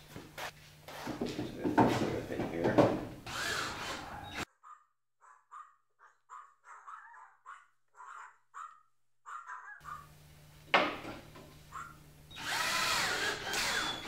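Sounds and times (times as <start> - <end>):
cordless drill driving screw: 3.2 - 4.4, 12.3 - 14.0
dog barking faintly: 4.6 - 10.0.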